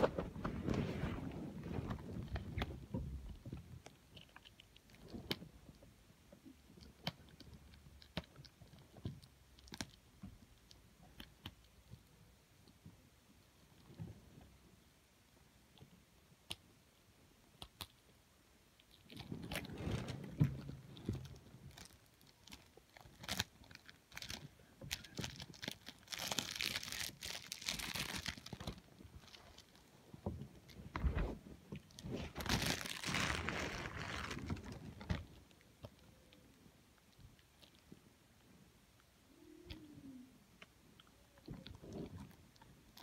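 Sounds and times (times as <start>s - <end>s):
packaging crinkling and tearing: 19.1s - 29.8s, 31.9s - 35.4s.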